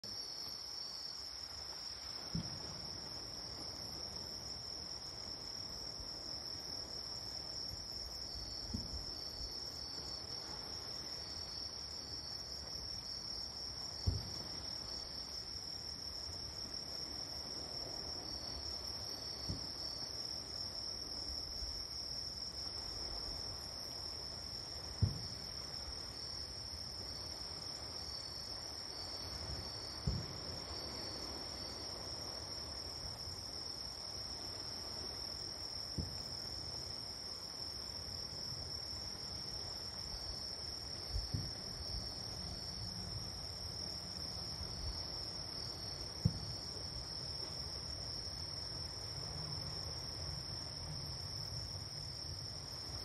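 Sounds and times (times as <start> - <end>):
night insects trilling: 0.1 - 53.0
distant fireworks booming: 14.0 - 14.6, 24.9 - 25.6, 29.4 - 31.2, 46.2 - 46.8.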